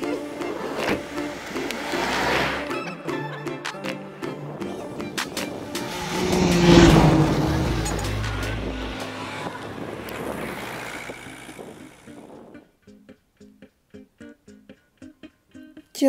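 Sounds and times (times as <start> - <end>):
vehicle driving past on gravel: 0.5 - 2.7, 4.7 - 12.3.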